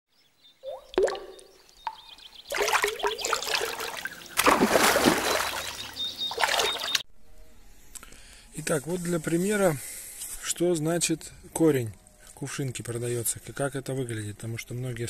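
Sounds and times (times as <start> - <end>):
water splashing and trickling: 0.6 - 7.0.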